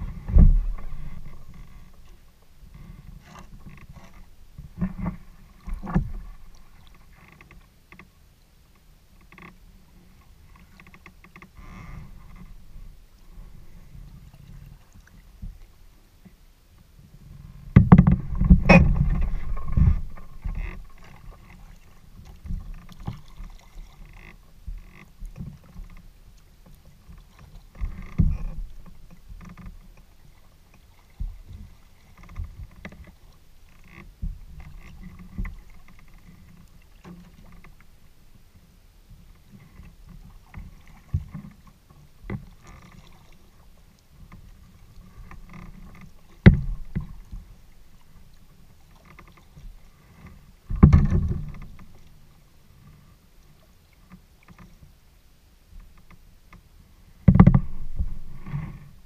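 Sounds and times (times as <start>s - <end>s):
knocks through kayak hull: 0.0s - 1.5s, 4.7s - 6.5s, 17.8s - 21.6s, 46.0s - 47.5s, 50.7s - 52.1s, 57.2s - 59.0s
paddle splashes and drips: 0.0s - 17.0s, 17.7s - 59.0s.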